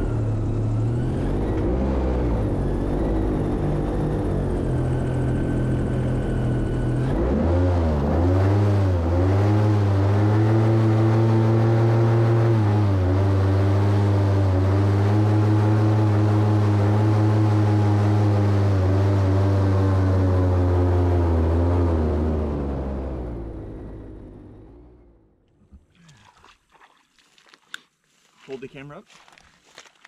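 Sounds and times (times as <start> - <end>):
airboat engine and propeller: 0.0 - 24.9.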